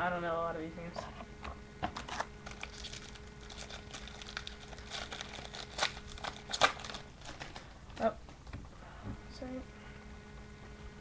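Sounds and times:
foil wrapper crinkling: 2.0 - 8.1.

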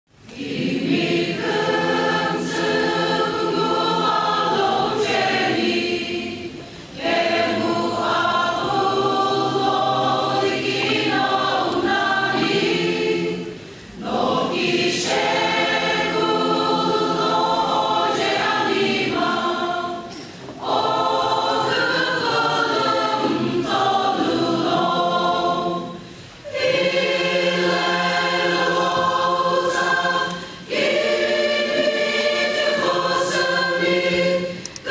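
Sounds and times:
choir singing gospel: 0.2 - 34.9.

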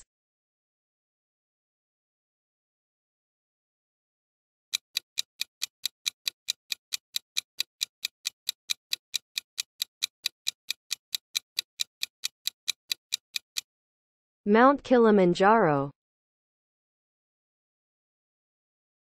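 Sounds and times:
clock ticking: 4.8 - 13.7.

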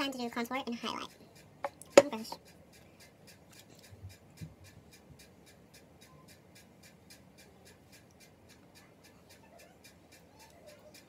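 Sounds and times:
faint quick ticking: 1.1 - 11.0.

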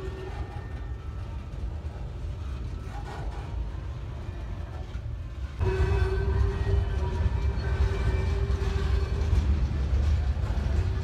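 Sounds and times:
faint whining tones: 0.0 - 11.0
freight train rumbling by: 0.0 - 11.0.

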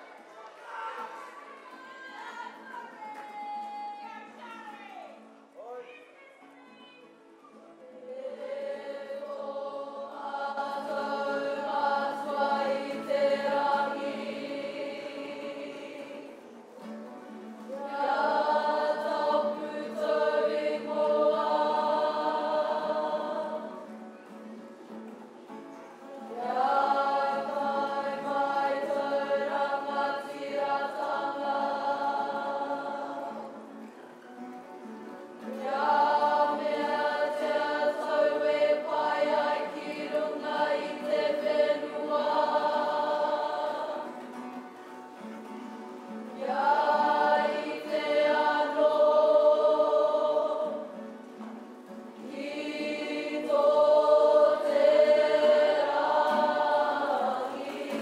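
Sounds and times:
mixed choir singing: 7.8 - 17.0, 17.6 - 24.1, 26.1 - 33.9, 35.4 - 45.3, 46.0 - 58.0.

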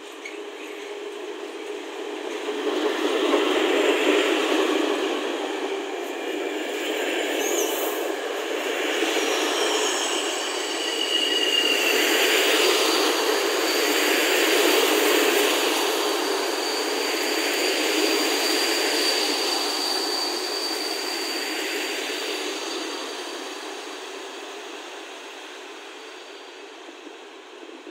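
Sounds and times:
train wheels rumbling on rails: 0.0 - 27.9
high brake squeal: 3.4 - 25.2.

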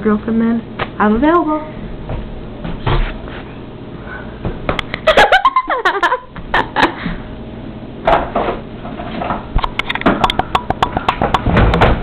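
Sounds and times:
boxes knocking and clattering: 10.0 - 12.0.

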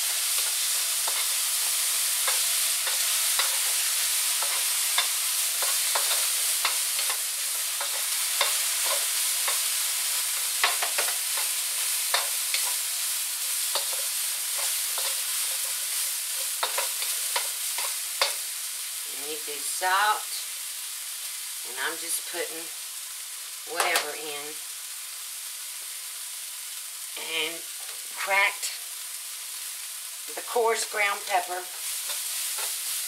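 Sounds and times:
wooden spoon scraping a pan: 0.0 - 12.8, 13.4 - 18.4, 31.0 - 33.0
broccoli sizzling in a wok: 0.0 - 33.0.

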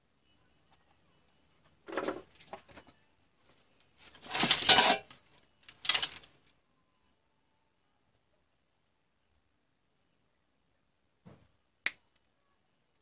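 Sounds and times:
small parts scraping clatters: 4.0 - 6.4.

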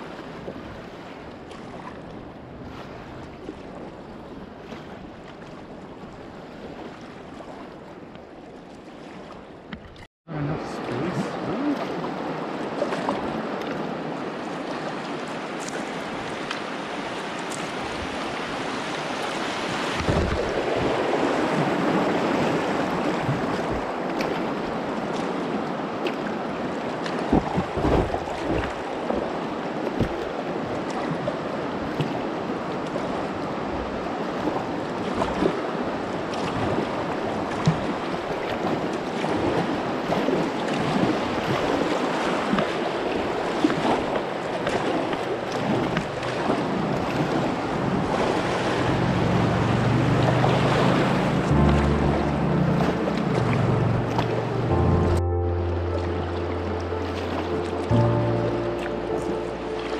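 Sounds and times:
whitewater rapids rushing: 10.4 - 54.9
wind buffeting microphone: 17.6 - 51.7.

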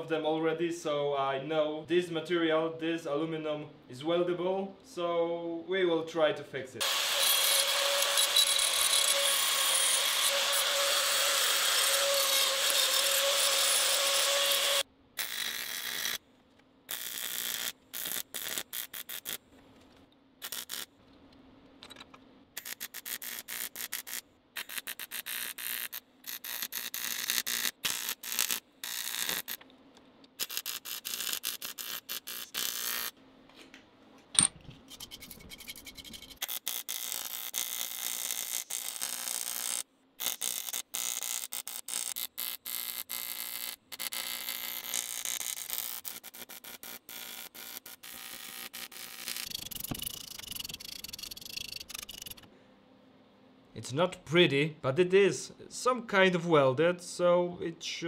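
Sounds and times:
die grinder grinding metal: 6.8 - 16.2.

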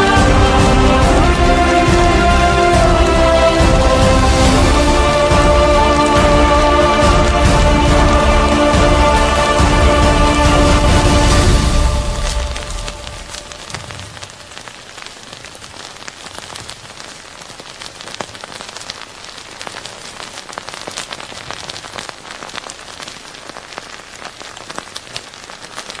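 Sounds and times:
steady hiss: 0.0 - 26.0
crackles and pops: 12.0 - 26.0.

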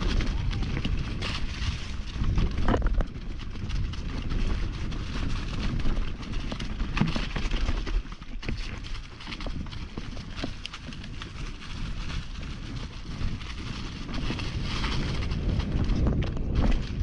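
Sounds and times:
bike rattling: 0.0 - 17.0
bike tyres over dirt and rocks: 0.0 - 17.0.

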